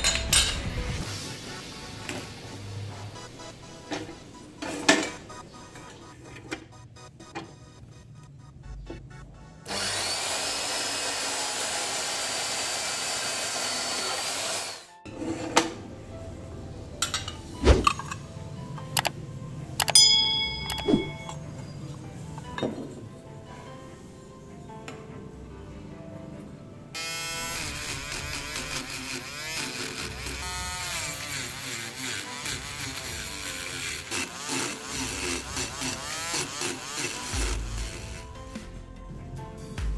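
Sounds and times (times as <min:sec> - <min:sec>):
background music: 0:00.0 - 0:39.9
band saw cutting metal: 0:09.6 - 0:15.0, 0:27.0 - 0:38.6
rotary grinder sanding metal: 0:09.7 - 0:14.9, 0:27.0 - 0:38.5.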